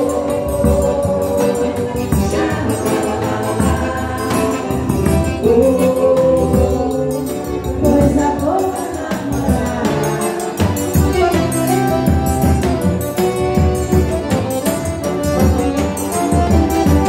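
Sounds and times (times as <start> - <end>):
bass drum beat: 0.0 - 6.9, 10.6 - 17.0
accordion playing tune: 0.0 - 17.0.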